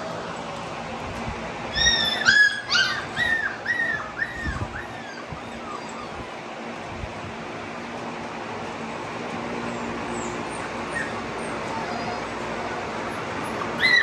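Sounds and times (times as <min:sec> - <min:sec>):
puppies whimpering: 0:00.0 - 0:14.0.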